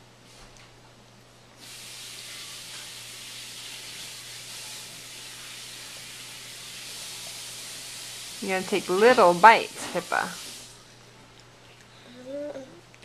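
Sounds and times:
food sizzling in a frying pan: 1.6 - 10.8.

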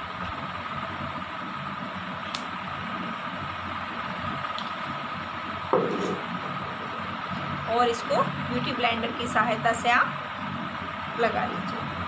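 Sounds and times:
thin high whine: 4.8 - 11.8.

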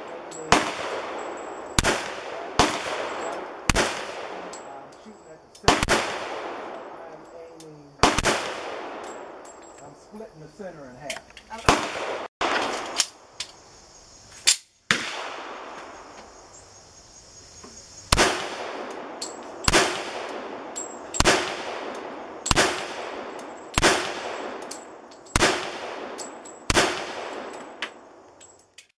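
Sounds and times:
pistol gunshots echoing: 0.0 - 4.8, 5.6 - 7.1, 8.0 - 9.5, 11.7 - 13.0, 14.9 - 15.8, 18.1 - 28.0
brass casings clinking: 0.0 - 10.2, 18.1 - 28.9.

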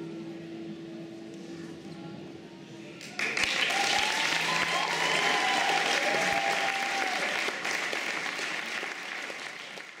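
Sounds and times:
audience applauding: 3.0 - 10.0.

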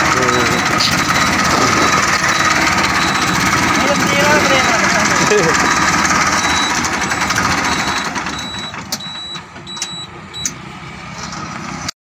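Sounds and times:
tractor engine running: 0.0 - 11.9
short high-pitched beeps: 0.5 - 3.4, 5.6 - 10.5.

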